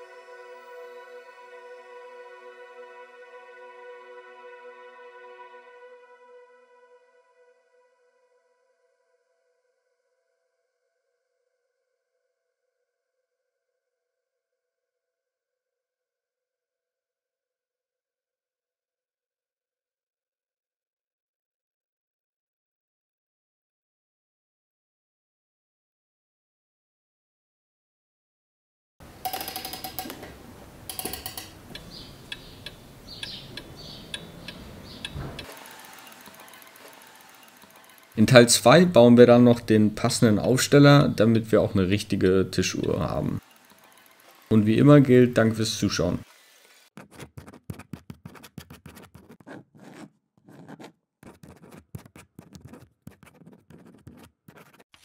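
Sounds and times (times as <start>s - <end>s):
clattering clicks: 29.2s - 37.0s
wristwatch ticking: 30.9s - 38.5s
scratchy pen writing strokes: 47.0s - 55.0s.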